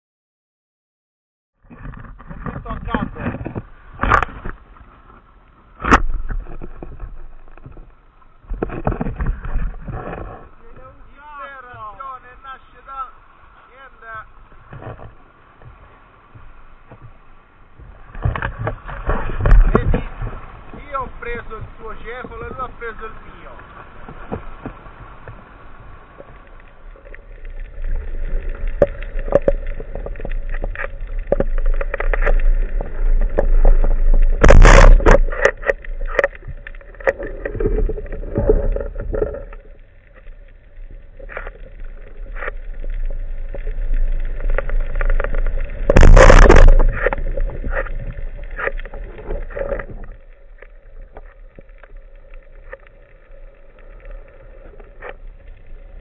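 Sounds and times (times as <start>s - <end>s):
muffled underwater rushing water: 1.6s - 56.0s
clicks and knocks: 44.4s - 50.2s.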